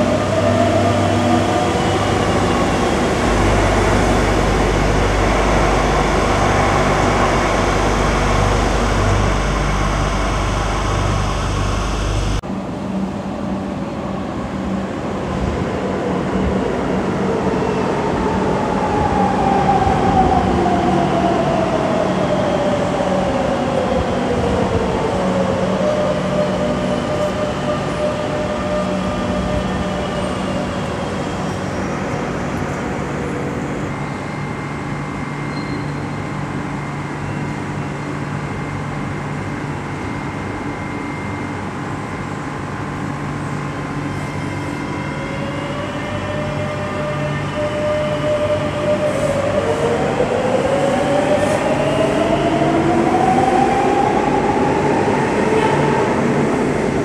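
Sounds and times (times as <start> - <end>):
train braking whine: 0.0 - 12.4, 25.4 - 57.0
standing train hum: 0.0 - 57.0.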